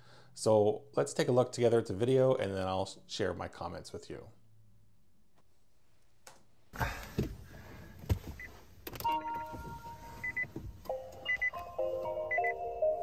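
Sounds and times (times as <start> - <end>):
electronic chime notes: 9.0 - 13.0.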